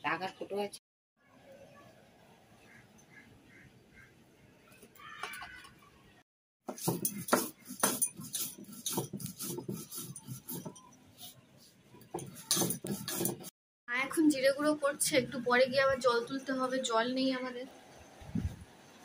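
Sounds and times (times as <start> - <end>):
stone grinding on a slab: 12.2 - 13.5.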